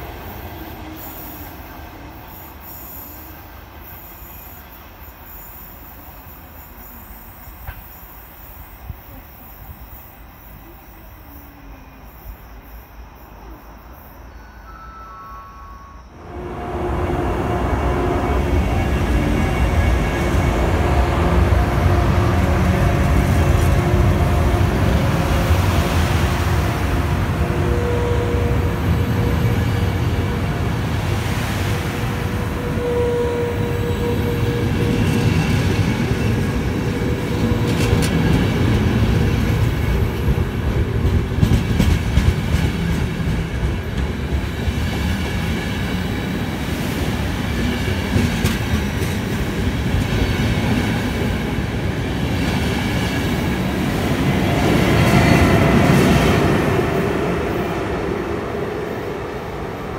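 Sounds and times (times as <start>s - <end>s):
train squeal: 0.0s - 59.9s
train wheels rumbling on rails: 16.3s - 59.9s.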